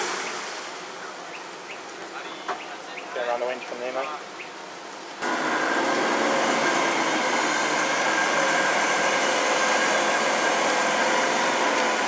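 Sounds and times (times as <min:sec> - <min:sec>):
winch motor whine: 0:05.2 - 0:12.0.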